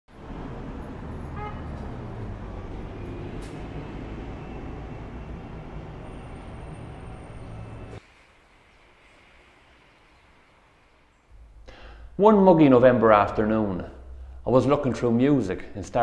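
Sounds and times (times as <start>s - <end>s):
bus engine rumbling: 0.1s - 8.0s
city street traffic: 0.1s - 11.6s.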